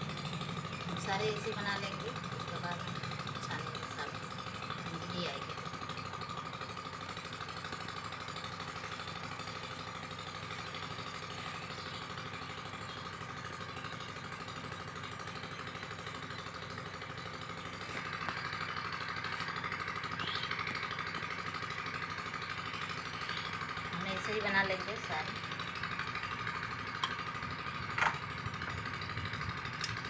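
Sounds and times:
machine humming with a whine: 0:17.6 - 0:30.0.

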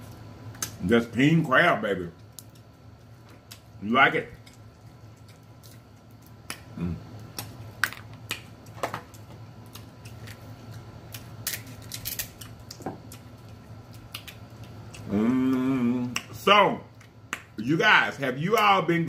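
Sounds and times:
crab shell cracking: 0:04.4 - 0:17.6.

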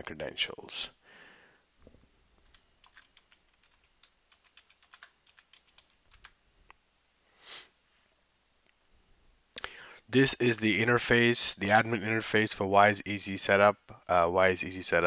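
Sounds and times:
typing on computer keyboard: 0:02.4 - 0:06.4.

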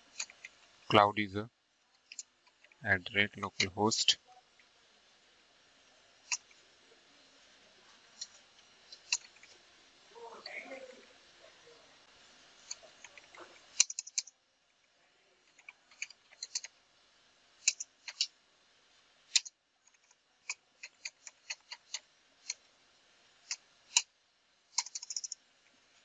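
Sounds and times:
computer keyboard typing: 0:00.1 - 0:00.6, 0:08.2 - 0:09.5, 0:15.6 - 0:16.7, 0:24.8 - 0:25.4.

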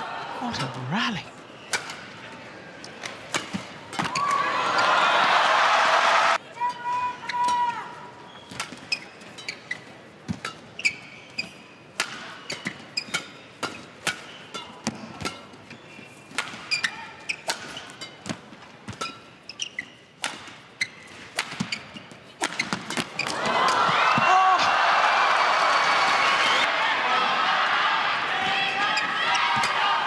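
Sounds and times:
rackets smacking shuttlecock: 0:01.7 - 0:02.1, 0:02.8 - 0:04.3, 0:11.4 - 0:15.6, 0:16.3 - 0:24.2
shoes squeaking: 0:08.2 - 0:24.3.

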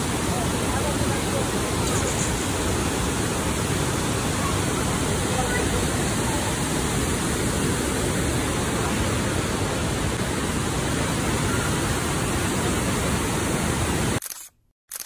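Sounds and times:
waterfall rushing: 0:00.0 - 0:14.2
camera shutter click: 0:14.2 - 0:15.0.

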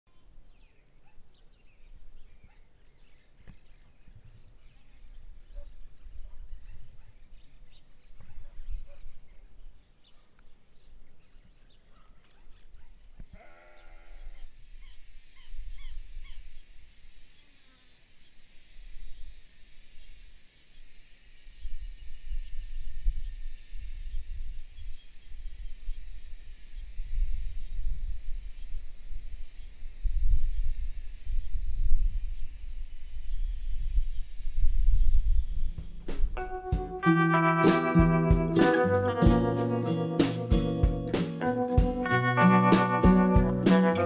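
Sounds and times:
sheep or goat bleating: 0:13.4 - 0:14.5
high insect drone: 0:13.4 - 0:37.1.

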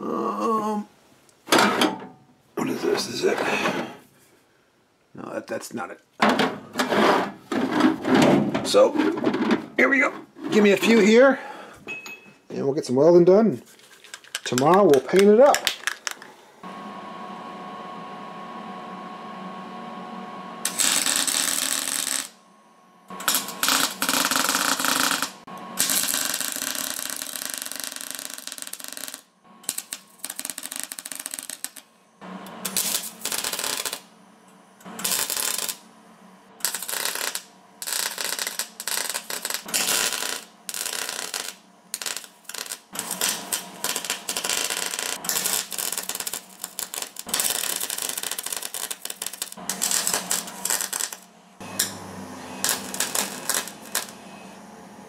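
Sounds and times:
welder arc crackling and hissing: 0:20.6 - 0:22.4, 0:23.2 - 0:34.1, 0:34.8 - 0:35.9, 0:36.5 - 0:54.6
steady hum: 0:29.3 - 0:55.0.

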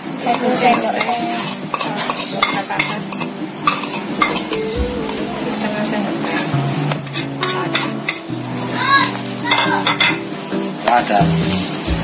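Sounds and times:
fork scraping plastic plate: 0:00.3 - 0:04.6.

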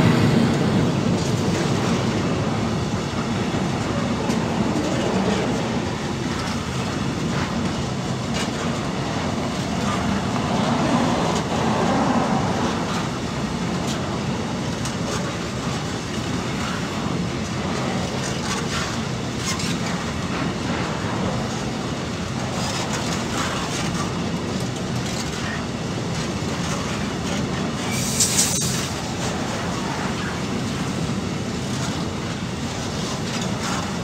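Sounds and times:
freight train wheels rumbling: 0:00.0 - 0:34.0
clacks over rail joints: 0:03.1 - 0:34.0
loud hiss: 0:27.9 - 0:29.0.

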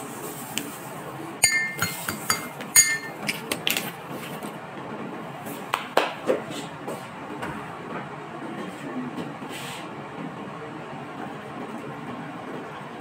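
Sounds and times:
spoon clinking against cup: 0:01.4 - 0:03.6.

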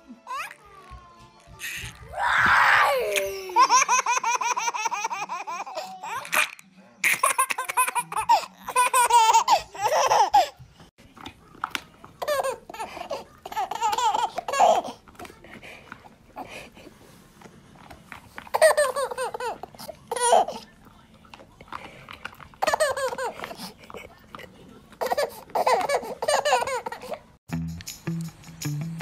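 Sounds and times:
babies laughing: 0:01.6 - 0:10.6, 0:12.2 - 0:15.0, 0:18.5 - 0:20.6, 0:22.6 - 0:24.0, 0:25.0 - 0:27.3.

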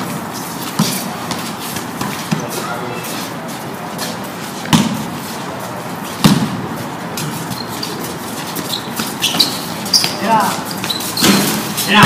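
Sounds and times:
shoes scuffing on court: 0:00.4 - 0:06.6, 0:07.2 - 0:11.9
basketball thuds: 0:04.7 - 0:05.0, 0:06.2 - 0:06.6.

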